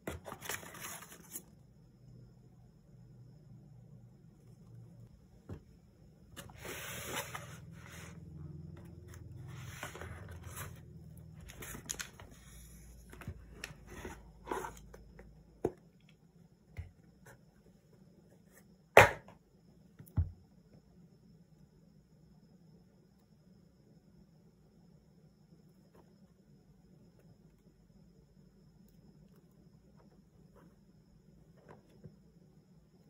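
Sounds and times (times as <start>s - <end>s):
cardboard box rustling and scraping: 6.4s - 8.2s, 9.1s - 10.8s.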